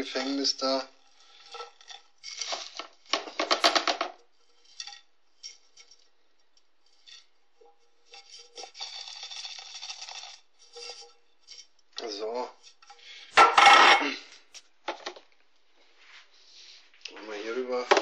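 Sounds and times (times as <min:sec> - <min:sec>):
tobacco rustling and rattling: 0:00.0 - 0:15.6
metal tin clinking and knocking: 0:02.4 - 0:04.2, 0:12.6 - 0:14.2.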